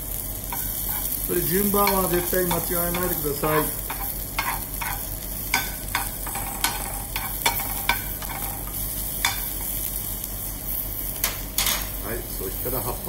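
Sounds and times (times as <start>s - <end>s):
food sizzling in a frying pan: 0.0s - 13.0s
metal spoon scraping a pan: 0.5s - 1.2s, 1.8s - 9.7s.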